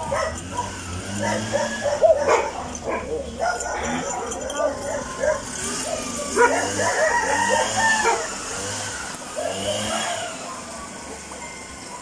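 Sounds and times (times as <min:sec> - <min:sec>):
rooster crowing: 0:06.1 - 0:08.9.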